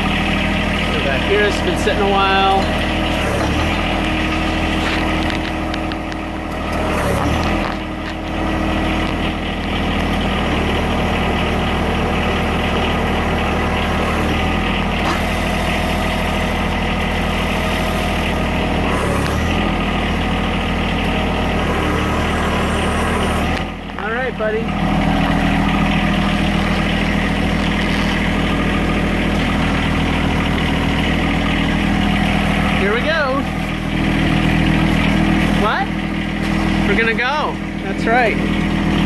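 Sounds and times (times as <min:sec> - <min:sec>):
diesel engine idling: 0:00.0 - 0:39.0.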